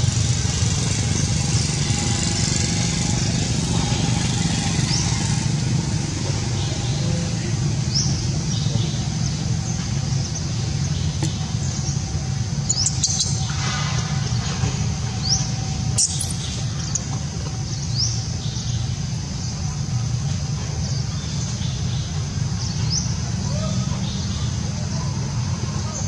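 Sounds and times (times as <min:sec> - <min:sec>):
bird chirping: 0:12.7 - 0:13.5, 0:15.2 - 0:18.9.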